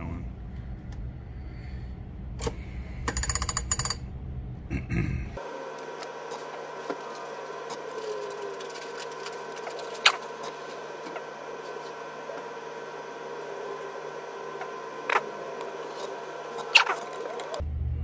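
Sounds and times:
line-spooling machine humming: 0:05.4 - 0:17.6.

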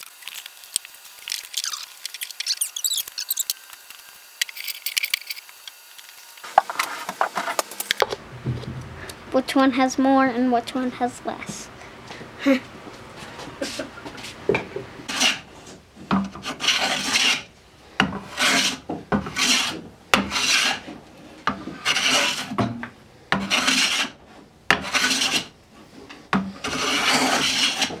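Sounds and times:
hand plane shaving wood: 0:15.1 - 0:17.5, 0:18.1 - 0:22.6, 0:23.4 - 0:28.0.

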